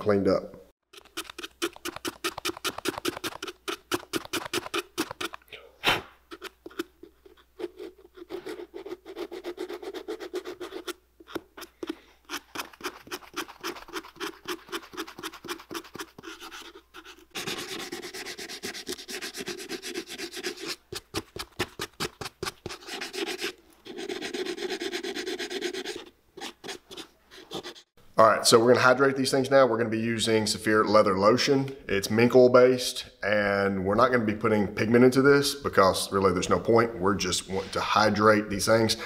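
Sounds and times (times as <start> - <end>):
scrubbing rust off metal: 0.9 - 5.5, 6.2 - 27.8.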